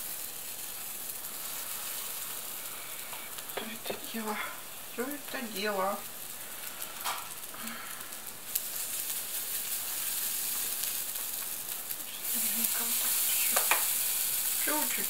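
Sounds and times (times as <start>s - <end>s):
hot oil sizzling in a frying pan: 0.0s - 15.0s.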